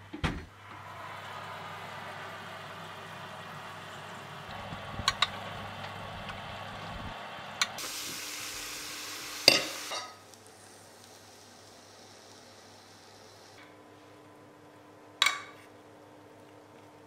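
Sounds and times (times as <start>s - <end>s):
meat sizzling in a baking dish: 0.6s - 13.6s.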